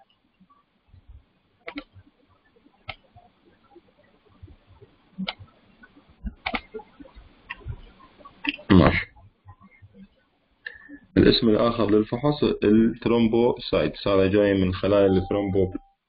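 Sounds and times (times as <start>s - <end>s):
computer mouse clicks: 1.6s - 2.0s, 2.8s - 3.2s, 4.4s - 8.7s.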